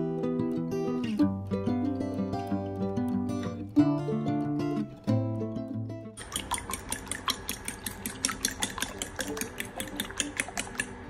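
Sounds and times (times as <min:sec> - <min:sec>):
fork beating egg whites in bowl: 0:06.2 - 0:11.0.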